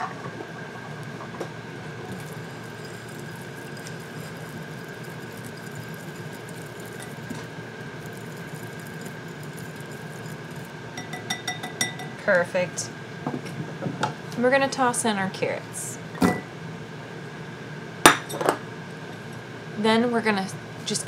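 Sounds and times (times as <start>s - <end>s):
whisk swishing oil in glass bowl: 2.1s - 10.8s.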